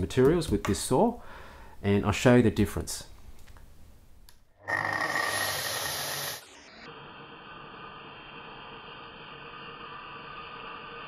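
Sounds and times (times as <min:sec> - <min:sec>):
vacuum cleaner running: 0:04.7 - 0:11.0.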